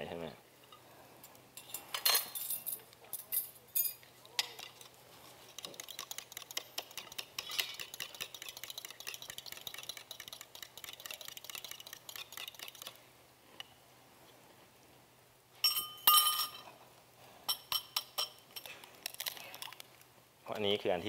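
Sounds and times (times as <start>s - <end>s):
spoon stirring in cup: 4.4s - 13.0s.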